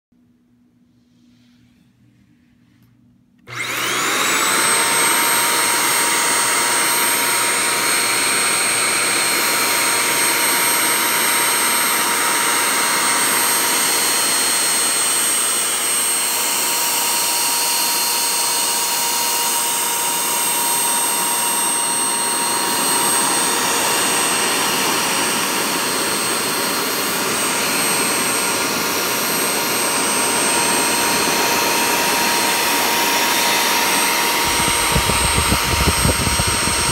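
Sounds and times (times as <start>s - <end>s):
vacuum cleaner motor whine: 3.4s - 36.9s
loud rush of air: 34.1s - 36.9s.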